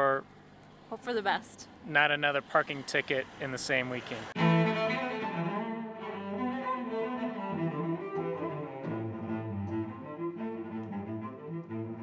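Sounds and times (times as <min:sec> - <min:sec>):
instrumental background music: 0:04.4 - 0:12.0.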